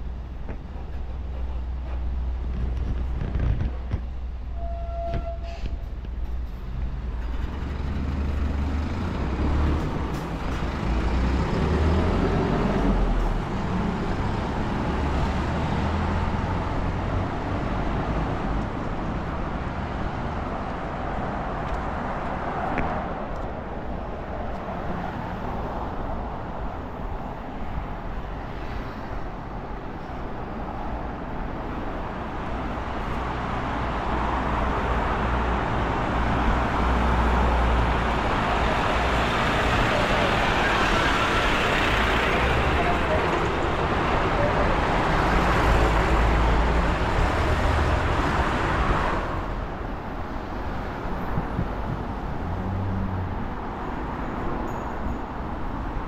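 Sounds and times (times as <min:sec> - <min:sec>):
passing vehicles: 0:00.0 - 0:56.0.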